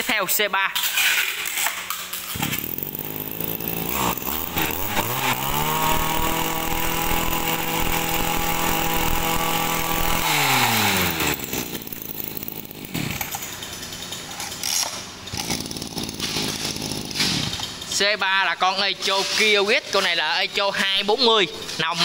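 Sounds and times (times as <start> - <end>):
brush cutter engine at high revs: 2.3 - 18.2
engine winding down: 2.3 - 18.2.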